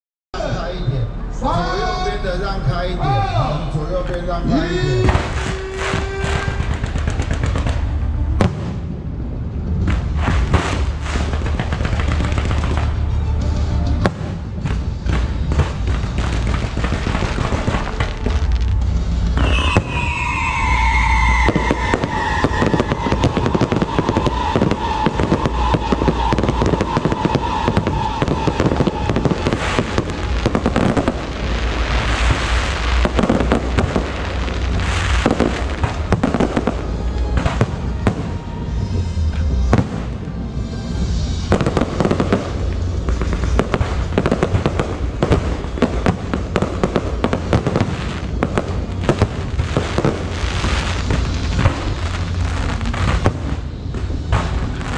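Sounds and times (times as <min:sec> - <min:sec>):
fireworks crackling: 0:04.5 - 0:54.9
fireworks shell bursts and bangs: 0:05.1 - 0:08.0, 0:09.8 - 0:20.3.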